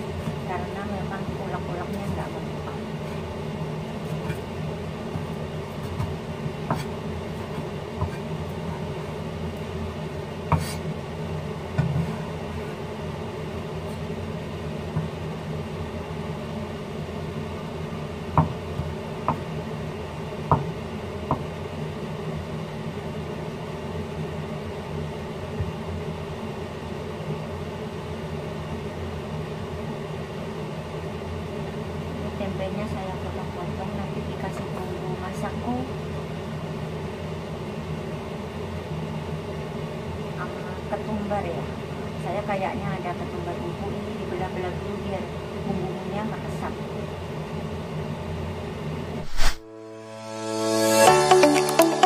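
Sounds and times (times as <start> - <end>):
steady low hum: 0.0 - 26.8.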